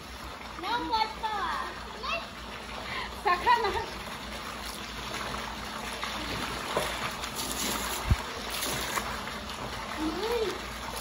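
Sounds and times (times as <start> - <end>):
pool water sloshing: 0.0 - 11.0
small splash: 4.5 - 11.0.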